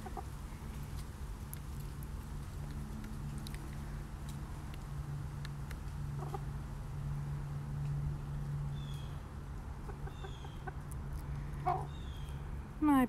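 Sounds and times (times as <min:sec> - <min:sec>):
chickens clucking: 0:00.0 - 0:00.4, 0:06.2 - 0:06.5, 0:09.7 - 0:12.1.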